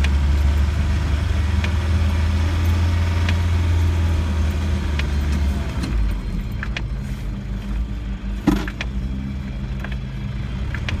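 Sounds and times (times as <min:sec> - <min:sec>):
car body knocks and rattles: 0:08.4 - 0:08.9.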